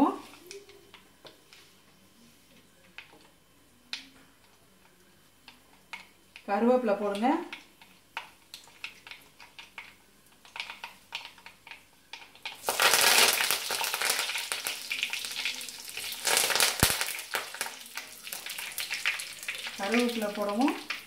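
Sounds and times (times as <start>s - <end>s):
seeds crackling in hot oil: 2.8s - 21.0s
leaves sizzling in oil: 6.0s - 21.0s.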